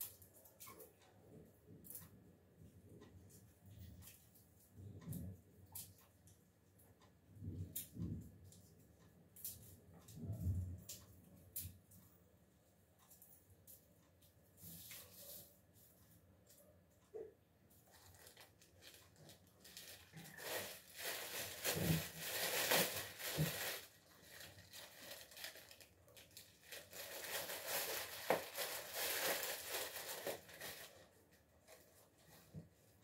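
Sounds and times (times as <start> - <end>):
plastic bag crinkling: 17.8 - 32.6.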